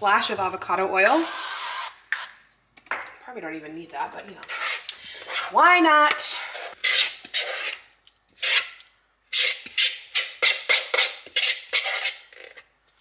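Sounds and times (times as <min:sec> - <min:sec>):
utensil scraping dip from bowl: 0:04.4 - 0:12.6.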